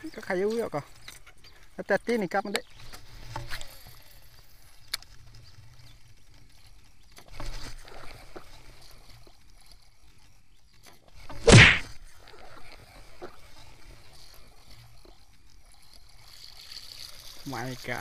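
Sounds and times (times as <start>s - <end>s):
loud splash on water: 11.5s - 11.9s
sharp click: 11.5s - 11.9s.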